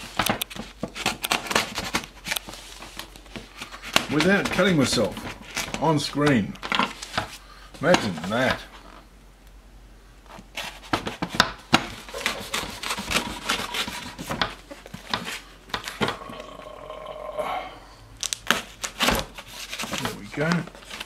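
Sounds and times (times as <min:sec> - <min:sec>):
knife cutting packing tape: 0:00.0 - 0:02.4, 0:10.6 - 0:16.0, 0:18.2 - 0:21.0.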